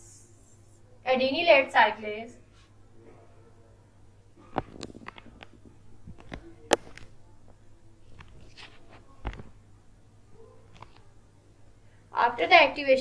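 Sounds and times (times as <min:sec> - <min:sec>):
low electrical hum: 0:00.0 - 0:13.0
objects clicking and knocking: 0:04.4 - 0:07.1.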